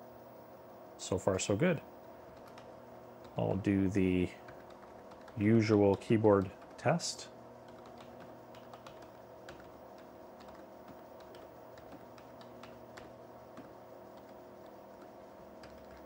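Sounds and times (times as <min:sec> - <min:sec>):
computer hum: 0:00.0 - 0:16.0.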